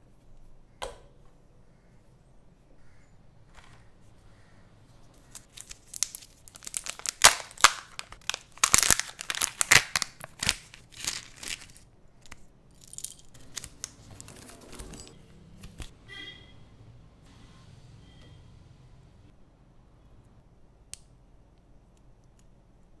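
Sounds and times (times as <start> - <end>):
plastic and paper rustling: 5.1 - 11.9, 13.0 - 15.9
foil wrapper tearing and crackling: 5.2 - 12.4, 13.0 - 14.3.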